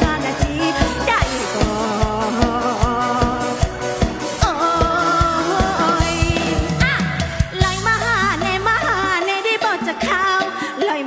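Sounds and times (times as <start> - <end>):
band with fast beat: 0.0 - 11.0
woman singing: 0.0 - 11.0.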